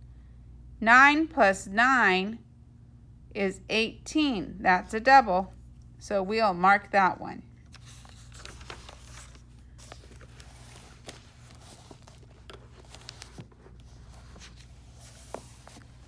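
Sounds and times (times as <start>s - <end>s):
steady low hum: 0.0s - 16.0s
paper pages turning: 7.6s - 16.0s.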